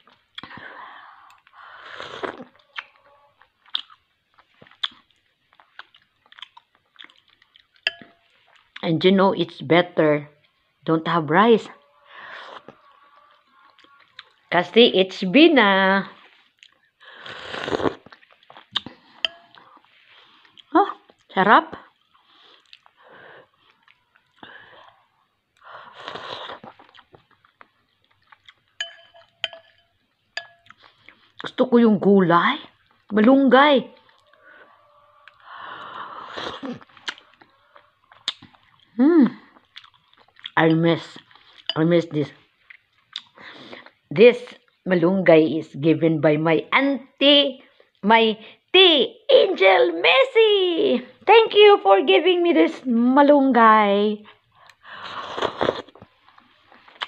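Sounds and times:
chewing: 0.0s - 8.8s, 12.0s - 14.5s, 16.2s - 31.6s, 34.0s - 41.8s, 42.4s - 44.0s, 54.5s - 57.0s
person slurping soup: 1.2s - 2.9s, 17.1s - 20.3s, 25.8s - 27.0s, 35.2s - 38.4s, 55.0s - 56.1s
mouth clicks and smacks: 1.3s - 8.9s, 16.6s - 19.8s, 35.2s - 40.6s, 42.6s - 44.0s, 54.6s - 57.0s
spoon and mouth clicks: 4.6s - 8.8s, 17.8s - 19.8s, 28.3s - 31.6s, 36.8s - 37.3s.

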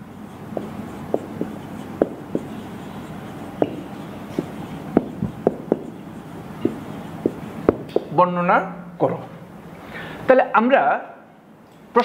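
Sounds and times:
low steady hum: 0.0s - 12.0s
marker tapping on whiteboard: 0.5s - 8.2s.

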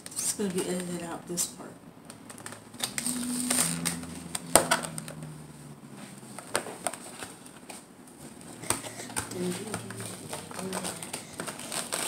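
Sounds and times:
low steady hum: 0.0s - 12.0s
plastic packaging crackling: 2.0s - 5.4s, 6.2s - 12.0s.

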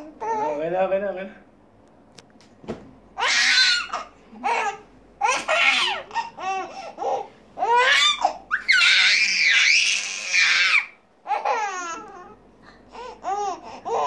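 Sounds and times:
baby laughing and squealing: 3.2s - 12.4s.

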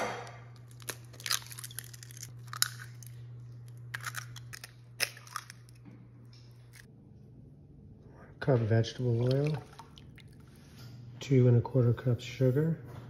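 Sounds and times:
steady low hum: 0.0s - 13.0s
eggshells cracking on glass bowl: 0.6s - 5.8s.

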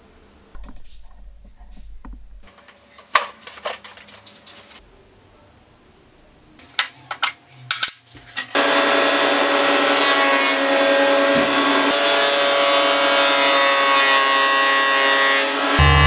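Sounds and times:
jointer-planer motor whine: 8.6s - 16.0s.

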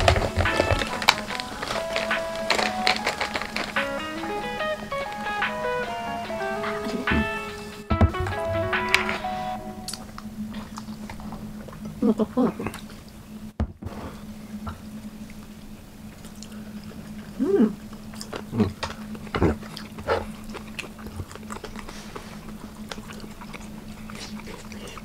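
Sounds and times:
chewing: 0.0s - 7.7s, 9.9s - 13.2s, 14.6s - 25.0s
low steady hum: 0.0s - 25.0s
short pitched sound: 3.8s - 10.7s.

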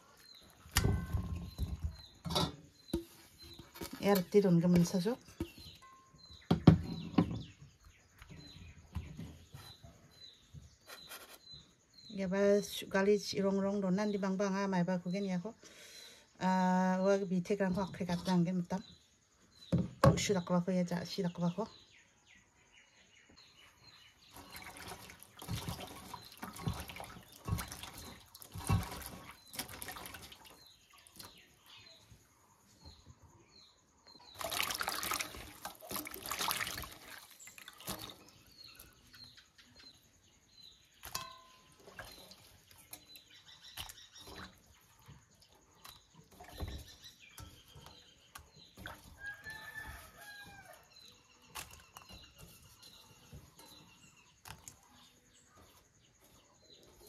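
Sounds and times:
water splashing in a metal basin: 0.0s - 5.9s, 24.2s - 31.6s, 34.2s - 39.1s, 40.8s - 55.2s
bird chirping: 0.0s - 35.4s, 36.2s - 57.0s.

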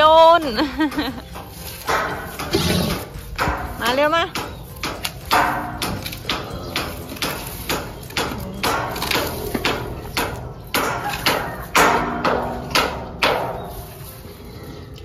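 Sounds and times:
sharp ringing knocks: 1.8s - 13.8s.

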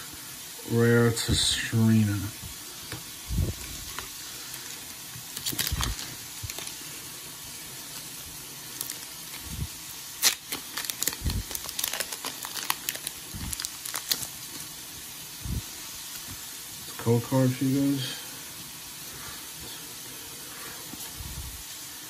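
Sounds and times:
foil wrapper crinkling and tearing: 3.5s - 7.0s, 8.6s - 15.0s.

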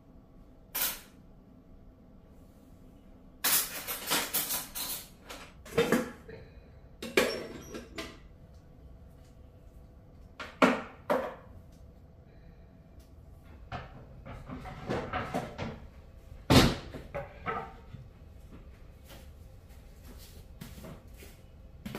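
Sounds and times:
kitchenware clattering: 3.4s - 6.3s, 7.0s - 8.2s, 13.7s - 15.8s, 16.5s - 18.0s
knocks and rattles: 13.4s - 15.9s.

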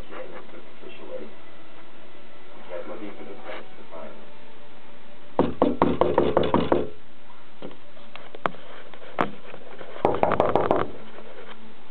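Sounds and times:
rapid knocks: 5.4s - 6.9s, 10.0s - 11.0s.

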